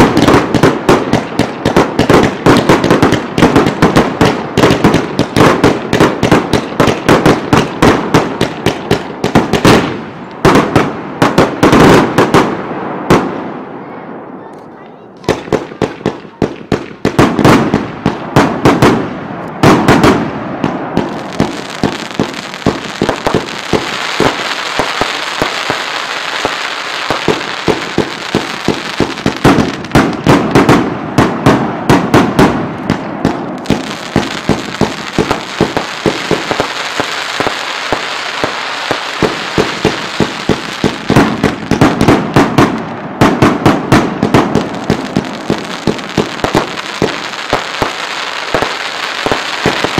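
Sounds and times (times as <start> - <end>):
fireworks launching and bursting: 0.0 - 13.9, 15.2 - 49.9.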